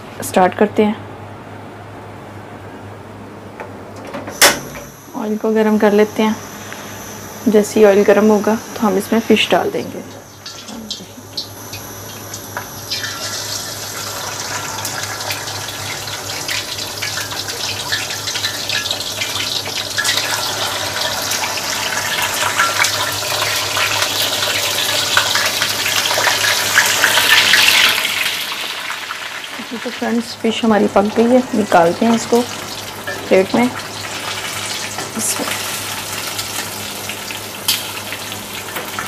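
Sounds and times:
fish deep-frying in oil: 0:08.0 - 0:39.0.

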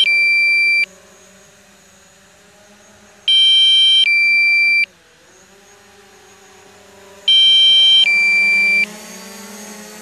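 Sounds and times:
two-part electronic alarm beep: 0:00.0 - 0:00.9, 0:03.3 - 0:04.9, 0:07.3 - 0:08.9
steady low hum: 0:00.0 - 0:10.0.

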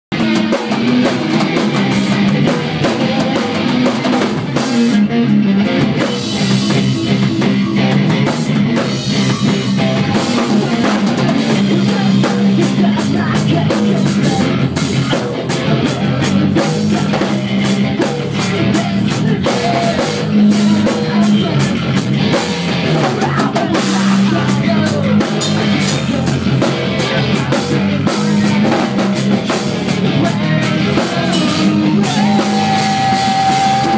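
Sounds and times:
drum kit beat: 0:00.1 - 0:33.9
electric guitar: 0:00.1 - 0:33.9.

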